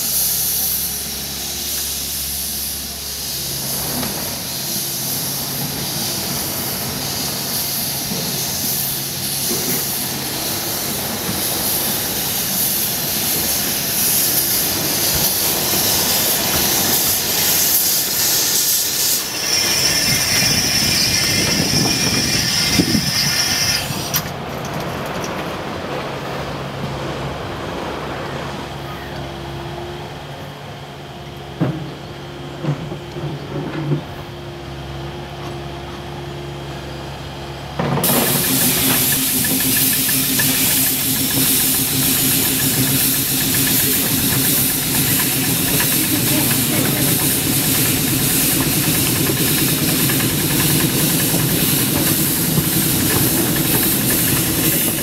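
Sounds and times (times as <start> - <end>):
loud steam hiss: 0.0 - 24.4, 38.0 - 55.0
steam locomotive hum: 0.0 - 55.0.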